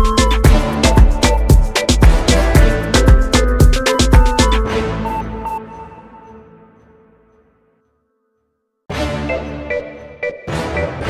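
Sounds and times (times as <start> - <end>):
music with drum beat and bass: 0.0 - 4.6.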